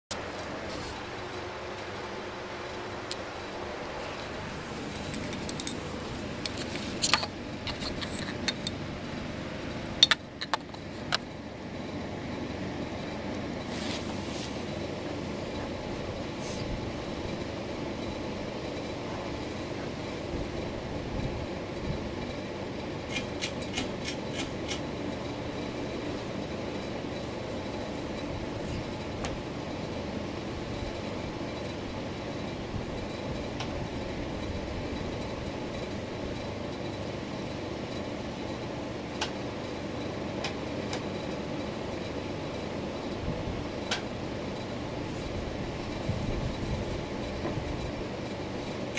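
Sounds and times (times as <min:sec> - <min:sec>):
ceiling fan whirring: 0:00.1 - 0:48.9.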